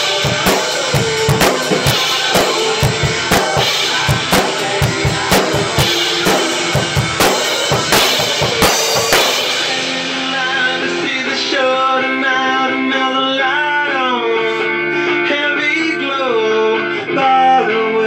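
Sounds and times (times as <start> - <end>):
drum kit hits and cymbals: 0.0 - 11.5
guitar-like music with bending notes: 0.0 - 18.0.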